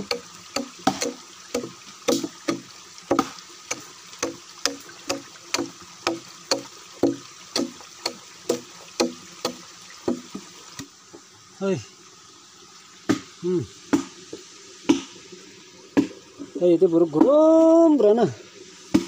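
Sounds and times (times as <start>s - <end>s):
chopping tool knocking on wood: 0.0s - 3.3s, 4.2s - 10.4s.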